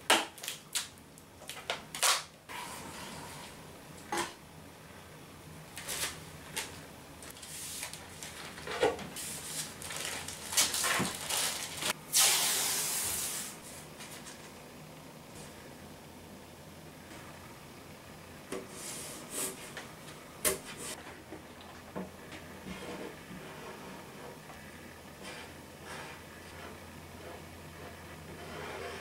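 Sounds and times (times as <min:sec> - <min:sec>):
plastic sheets clicking and crackling: 0:05.8 - 0:12.0.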